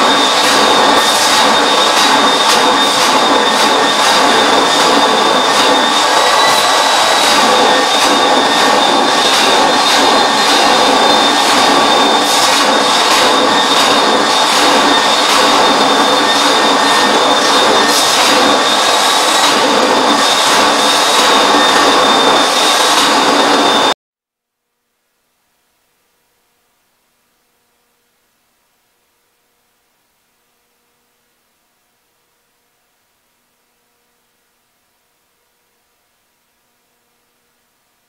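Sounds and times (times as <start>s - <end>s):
carpet extractor motor whine: 0.0s - 23.9s.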